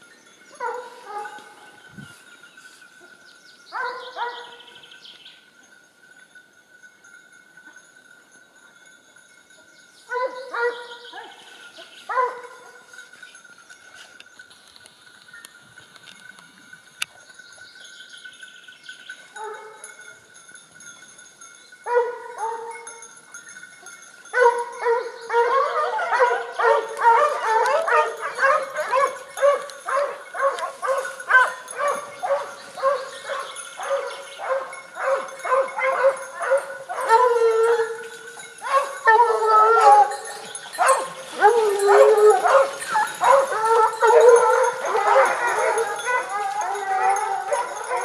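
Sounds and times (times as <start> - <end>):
dog barking: 0.6 - 1.5, 3.8 - 4.6, 10.1 - 11.4, 12.1 - 12.8, 21.9 - 22.9, 24.4 - 38.0, 38.6 - 48.0.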